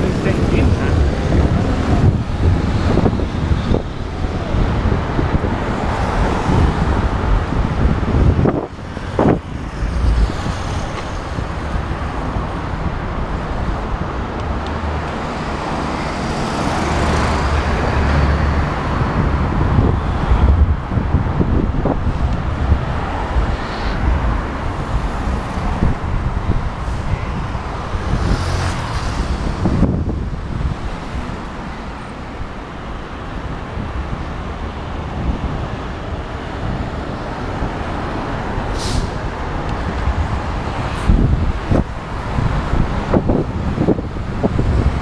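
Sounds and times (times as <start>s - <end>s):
road traffic: 0.0s - 45.0s
wind rumble on microphone: 0.0s - 45.0s
vehicle passing: 22.6s - 31.3s.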